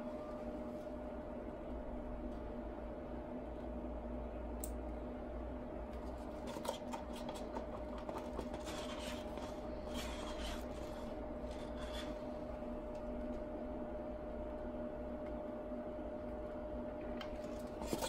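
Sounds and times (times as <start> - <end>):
steady hum: 0.0 - 18.0
stick scraping paper cup: 6.4 - 12.3.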